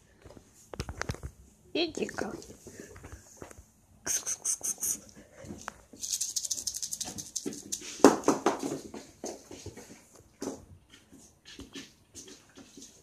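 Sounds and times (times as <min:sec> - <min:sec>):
kittens scampering on wooden floor: 0:05.0 - 0:13.0.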